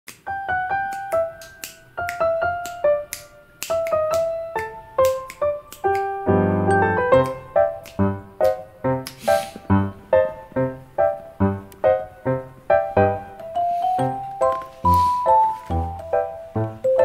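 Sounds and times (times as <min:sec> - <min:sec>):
cute piano music: 0:00.1 - 0:17.0
sharp snapping clicks: 0:00.9 - 0:06.2, 0:07.2 - 0:09.2.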